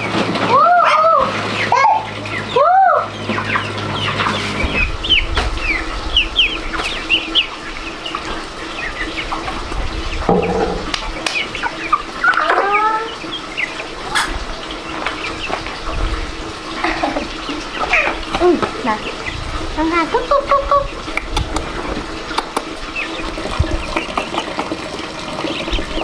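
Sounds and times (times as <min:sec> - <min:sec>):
chickens clucking: 0:00.0 - 0:26.0
low steady hum: 0:04.8 - 0:18.2.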